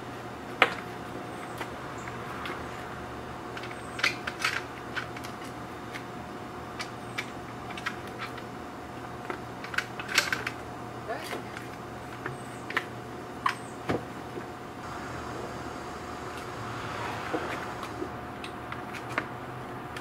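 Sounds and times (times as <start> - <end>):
steady low hum: 14.6 - 19.9.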